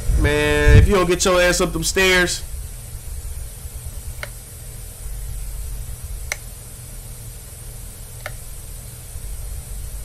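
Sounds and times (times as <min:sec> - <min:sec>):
low hum and hiss: 0:00.0 - 0:10.0
light switch clicking: 0:04.2 - 0:04.4, 0:06.2 - 0:06.5, 0:08.2 - 0:08.5.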